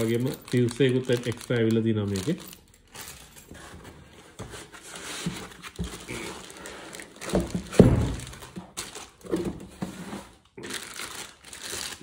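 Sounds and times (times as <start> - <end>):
plastic crinkling: 0.0 - 3.5, 5.0 - 9.4, 10.3 - 12.0.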